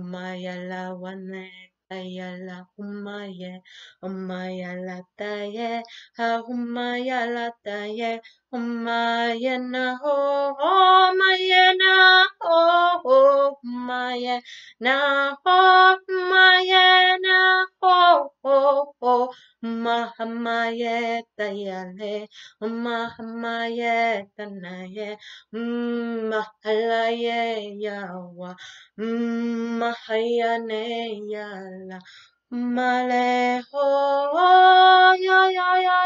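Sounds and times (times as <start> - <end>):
woman chanting: 0.0 - 32.0, 32.6 - 36.0.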